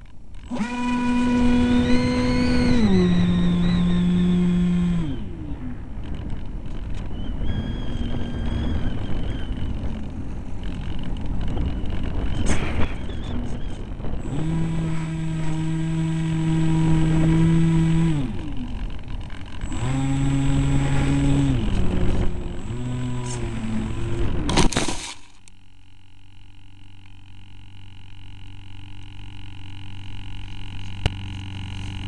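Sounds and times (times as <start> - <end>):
electric motor and propeller whine: 0.0 - 32.0
wind noise: 1.0 - 24.7.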